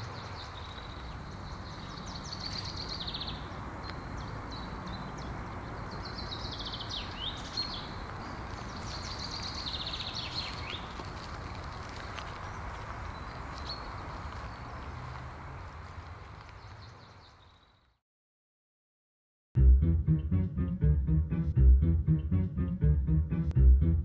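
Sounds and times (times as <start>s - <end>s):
car tyre rumble on bridge: 5.1s - 17.2s.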